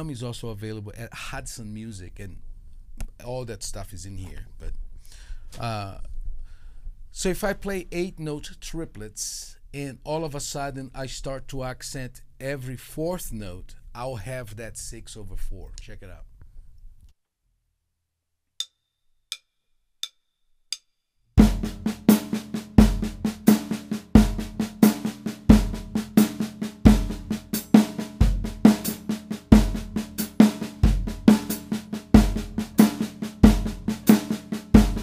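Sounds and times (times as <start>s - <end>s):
bass drum pulse: 21.4s - 35.0s
snare drum triplets: 21.4s - 35.0s.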